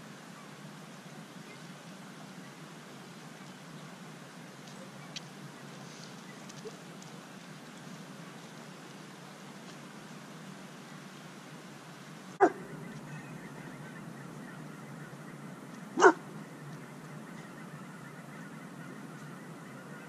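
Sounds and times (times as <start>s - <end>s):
outdoor background noise: 0.0s - 20.0s
dog barking: 12.4s - 12.6s, 16.0s - 16.2s.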